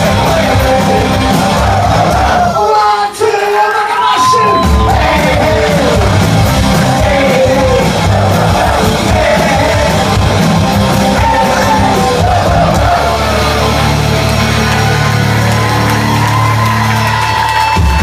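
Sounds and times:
live punk rock band: 0:00.0 - 0:02.6, 0:03.5 - 0:18.0
singer shouting vocals: 0:00.0 - 0:06.3, 0:06.9 - 0:10.2, 0:11.0 - 0:14.0.

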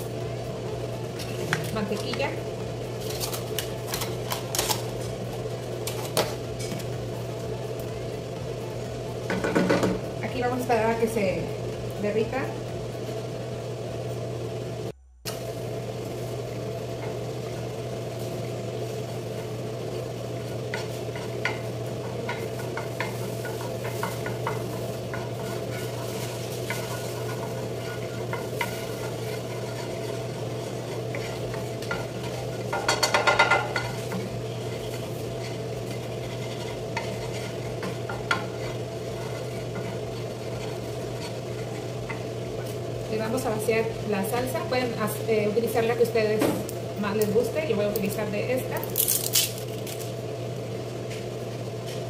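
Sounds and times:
butter sizzling in a pan: 0:15.7 - 0:45.0
wooden spoon scraping a pan: 0:20.6 - 0:43.4.

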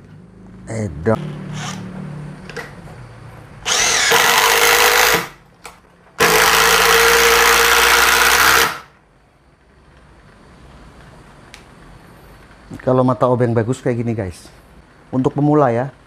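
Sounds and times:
impact driver hammering: 0:03.6 - 0:05.4, 0:06.2 - 0:08.9.

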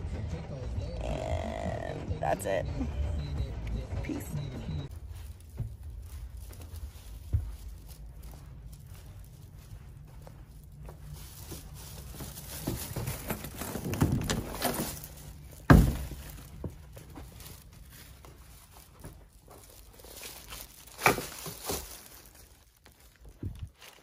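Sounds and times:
footsteps: 0:00.0 - 0:24.0
plastic bag rustling: 0:04.9 - 0:24.0
heavy thump: 0:15.7 - 0:16.7.

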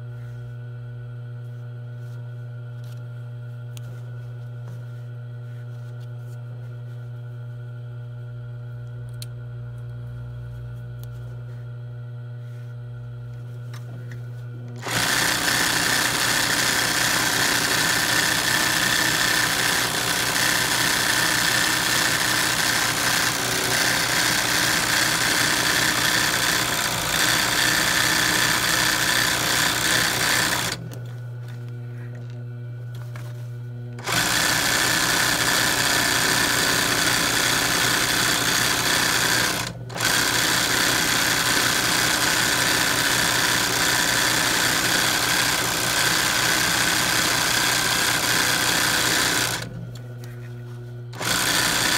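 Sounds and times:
sewing machine low hum: 0:00.0 - 0:51.9
sewing machine stitching fast: 0:14.8 - 0:30.8, 0:34.0 - 0:49.8, 0:51.2 - 0:51.9.

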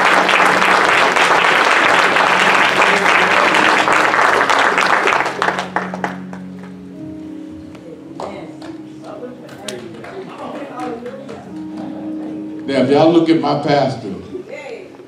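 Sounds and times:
crowd clapping: 0:00.0 - 0:06.8, 0:08.2 - 0:12.0.

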